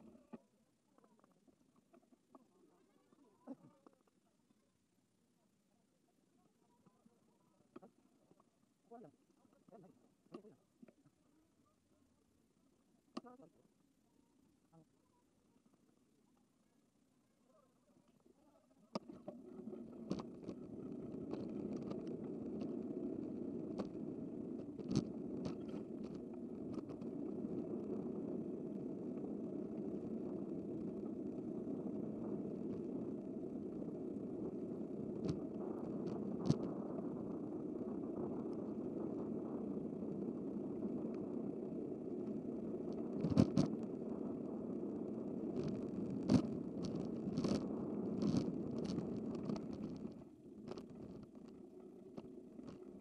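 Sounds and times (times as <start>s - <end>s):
sharp clicks and rattles: 19.0s - 28.4s, 42.9s - 43.9s, 45.6s - 53.0s
bicycle rolling road noise: 19.3s - 53.0s.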